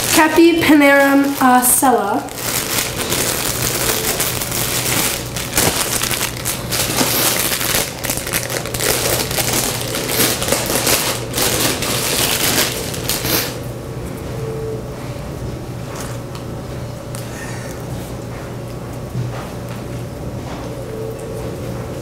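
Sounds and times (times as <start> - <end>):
plastic bag crinkling: 0.0 - 13.6.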